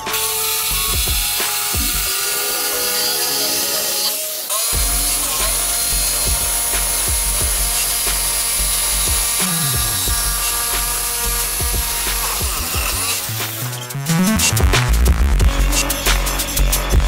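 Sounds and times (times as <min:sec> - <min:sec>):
jigsaw cutting plywood: 0:00.0 - 0:14.3
electronic music with heavy bass: 0:00.8 - 0:02.1, 0:04.8 - 0:17.0.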